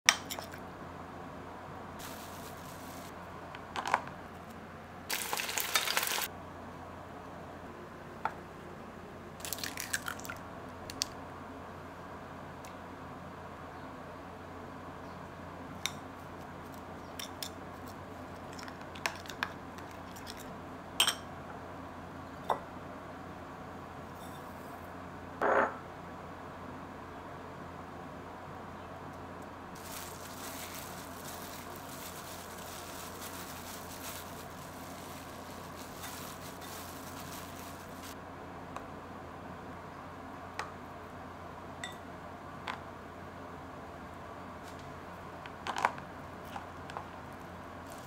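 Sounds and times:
faint steady hum: 0.1s - 48.0s
crackling rustle: 2.0s - 3.2s, 4.4s - 6.3s, 29.7s - 38.2s, 46.6s - 48.0s
soft hiss: 2.0s - 3.2s
metal spoon clinking on glass bowl: 21.0s - 21.2s.

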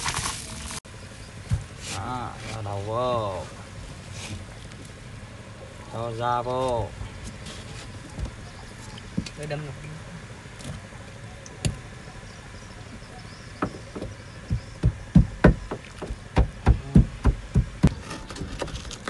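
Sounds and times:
pestle pounding in a mortar: 13.6s - 18.1s.

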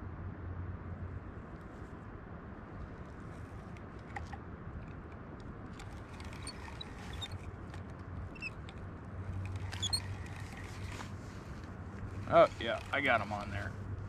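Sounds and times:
fishing reel clicks and squeaks: 5.8s - 7.5s, 8.3s - 8.8s, 9.4s - 11.0s, 12.5s - 13.3s
rod click-squeak: 5.8s - 7.5s, 8.3s - 8.8s, 9.4s - 11.0s.

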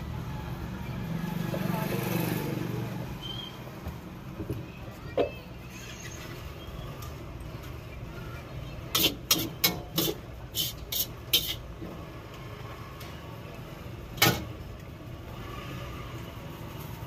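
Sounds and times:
metal utensils clanking on wok: 9.0s - 11.7s.

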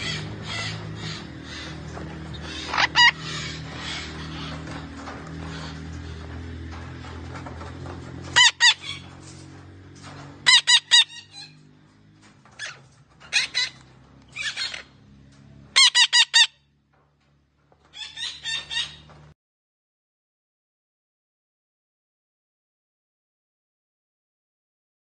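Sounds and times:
parakeet harsh calls: 0.0s - 6.2s, 8.4s - 9.1s, 10.4s - 11.6s, 12.6s - 13.8s, 14.4s - 15.0s, 15.7s - 16.6s, 18.0s - 19.1s.

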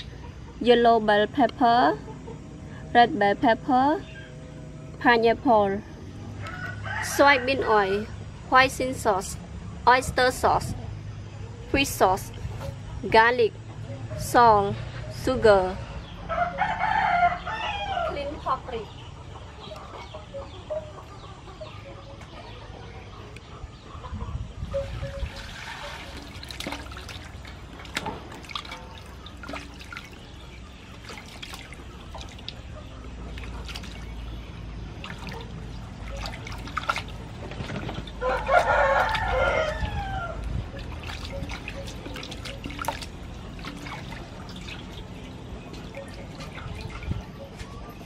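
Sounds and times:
rooster crowing: 6.2s - 7.7s, 16.3s - 18.2s, 38.2s - 40.4s
water pouring into metal basin: 24.8s - 32.6s
water splashing and dripping: 24.8s - 47.8s.

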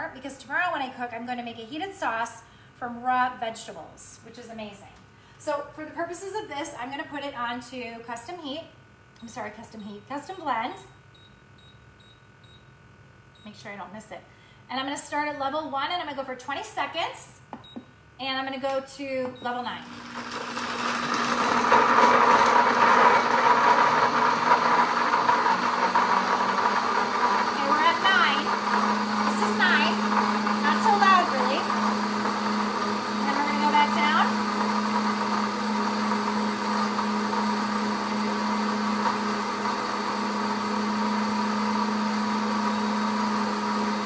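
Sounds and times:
blender motor whining: 19.4s - 44.0s.

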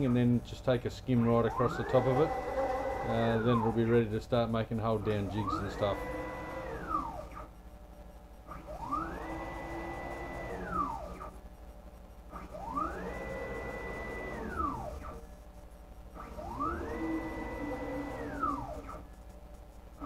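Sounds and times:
noisy belts: 0.0s - 7.5s, 8.5s - 11.4s, 12.3s - 15.4s, 16.1s - 20.0s
motor whine rising and falling: 1.2s - 4.1s, 4.9s - 7.5s, 8.5s - 11.4s, 12.3s - 15.2s, 16.2s - 19.0s.

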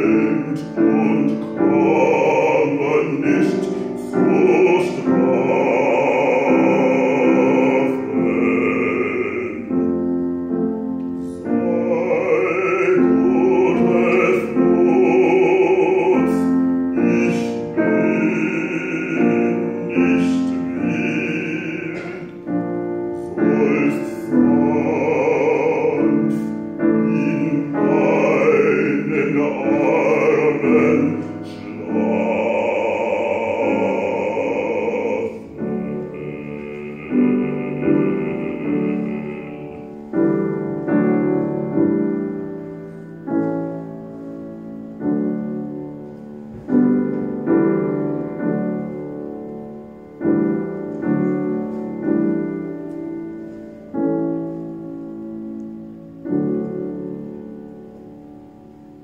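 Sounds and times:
man singing operatically: 0.0s - 10.2s, 11.2s - 42.3s
grand piano: 0.0s - 59.0s.

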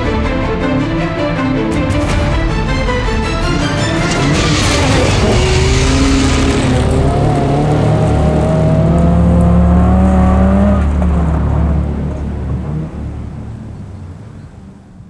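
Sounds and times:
car sliding on gravel: 3.8s - 10.0s
rally car engine at high revs: 4.0s - 13.3s.

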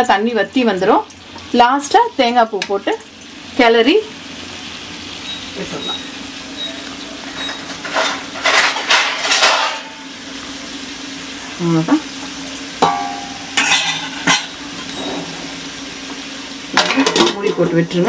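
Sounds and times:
ringing metal clink: 12.8s - 13.8s
metal spatula scraping pan: 13.6s - 15.3s.

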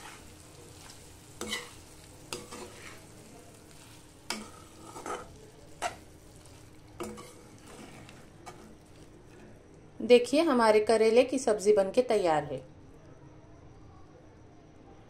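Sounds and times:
metal spatula scraping frying pan: 0.0s - 9.4s
faint sizzle: 0.0s - 15.0s.

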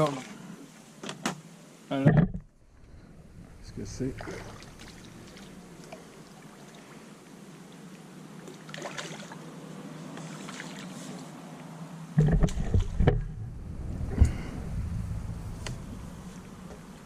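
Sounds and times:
water sloshing: 2.0s - 7.3s
loud low bumps: 2.1s - 5.9s, 12.2s - 17.0s
fish splashing at surface: 4.1s - 6.3s.

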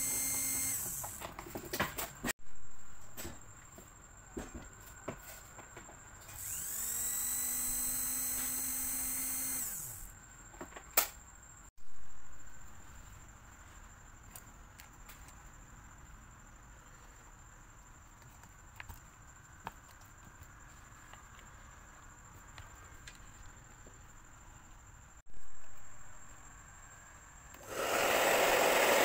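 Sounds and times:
small electric motor whining: 0.0s - 1.2s, 6.3s - 10.1s, 27.6s - 29.0s.

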